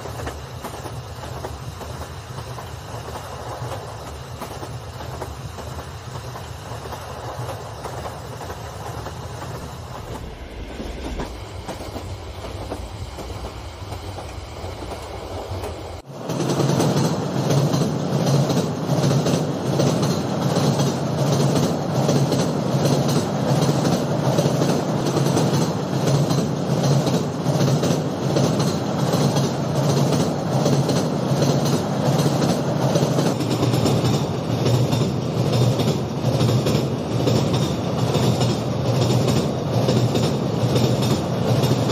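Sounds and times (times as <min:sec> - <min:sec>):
wheels clicking over track joints: 0:00.0 - 0:10.3, 0:11.1 - 0:41.9.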